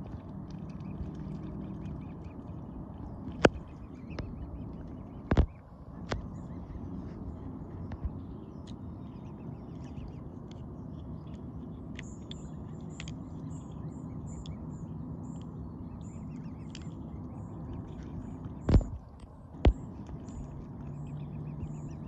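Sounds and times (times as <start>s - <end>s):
swans dabbling in water: 0.0s - 8.1s.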